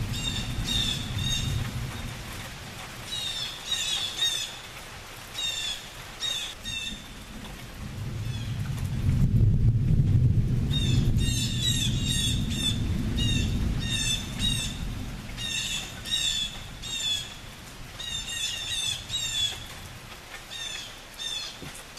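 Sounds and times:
distant thunder rumble: 0:00.0 - 0:03.2, 0:06.6 - 0:20.1
bird calling: 0:15.4 - 0:19.7, 0:20.5 - 0:21.8.

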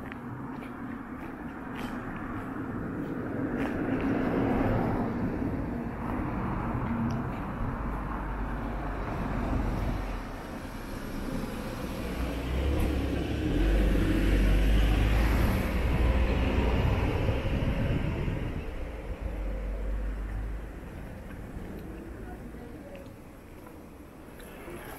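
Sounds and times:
car passing on street: 0:00.0 - 0:24.9.

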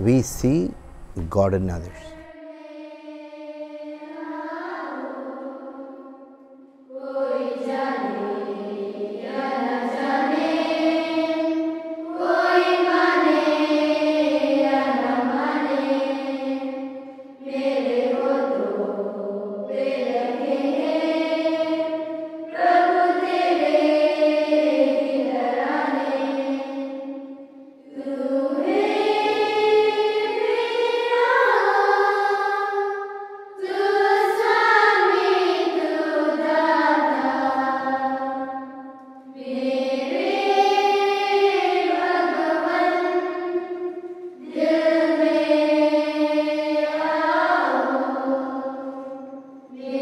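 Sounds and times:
choir singing slow chant: 0:00.0 - 0:50.0.

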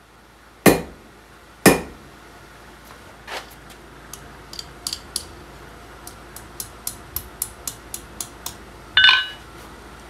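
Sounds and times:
hammer tapping on anvil: 0:01.7 - 0:02.0
loud ringing anvil clang: 0:09.0 - 0:09.4.

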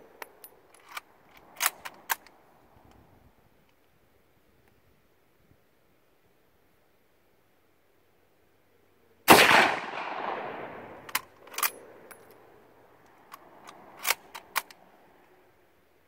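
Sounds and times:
rifle bolt clicks and clacks: 0:00.1 - 0:03.0, 0:11.0 - 0:12.4, 0:13.0 - 0:15.4
rifle shot: 0:09.3 - 0:11.6.

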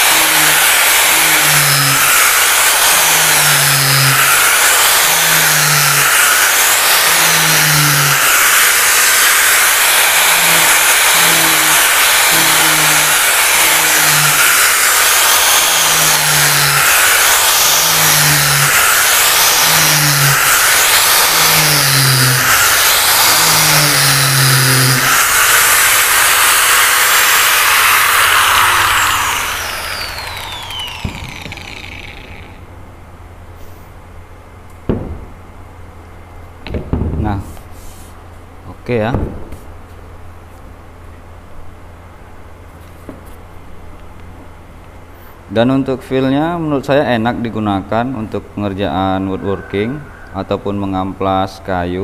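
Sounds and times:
angle grinder sanding wood: 0:00.0 - 0:32.6.

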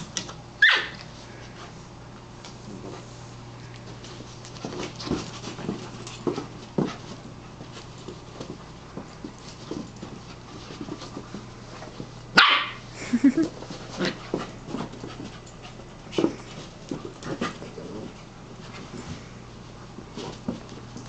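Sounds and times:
puppies scuffling: 0:00.0 - 0:21.0
puppy barking: 0:00.6 - 0:01.0, 0:12.4 - 0:12.8.

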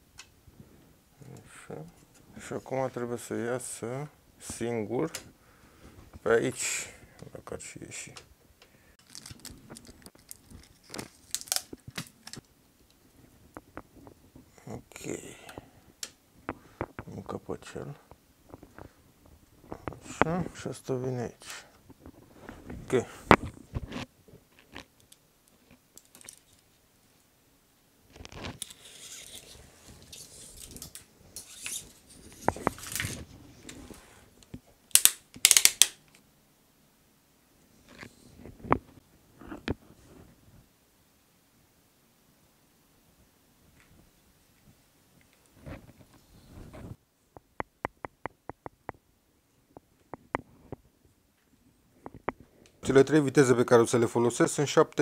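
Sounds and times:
cable rustling and clicking: 0:08.1 - 0:14.4, 0:21.4 - 0:26.8, 0:28.1 - 0:36.2
wire scraping and rustling: 0:28.1 - 0:34.4.

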